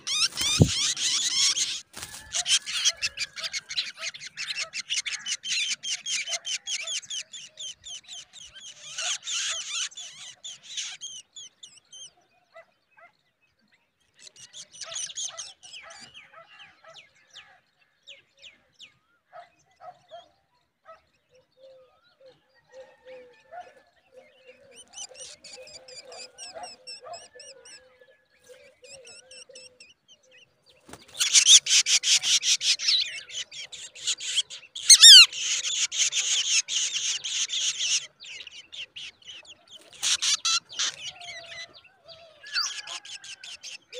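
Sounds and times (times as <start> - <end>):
nestlings chattering calls: 0.0 - 11.2, 30.8 - 41.8, 42.5 - 43.9.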